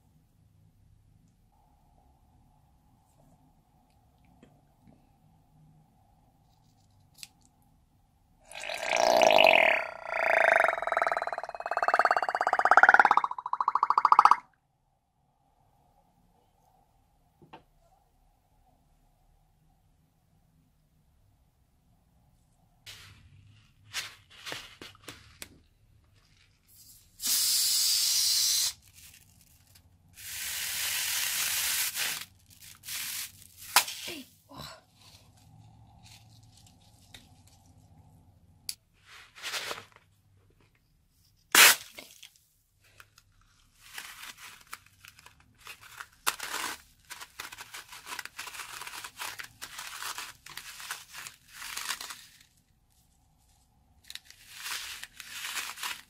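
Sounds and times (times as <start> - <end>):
beads pouring into glass bowl: 8.5 - 14.4
slime crinkling and crackling: 43.7 - 52.6.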